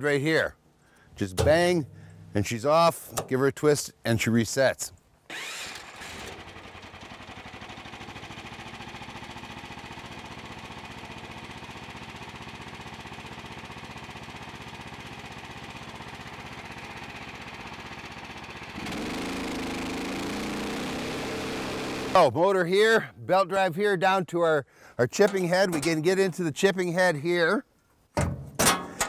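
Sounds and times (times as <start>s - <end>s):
wood chipper engine running: 5.3s - 22.2s.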